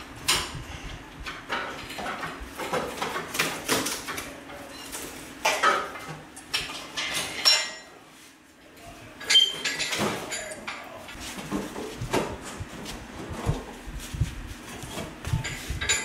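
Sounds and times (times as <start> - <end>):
metallic clanks and rattles: 15.3 - 16.0.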